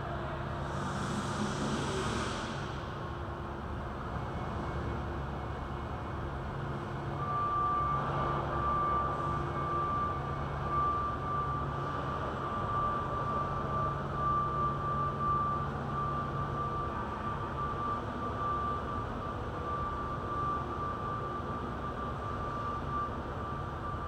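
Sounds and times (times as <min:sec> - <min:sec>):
construction machinery droning: 0:00.0 - 0:24.0
thin high whine: 0:00.4 - 0:04.2.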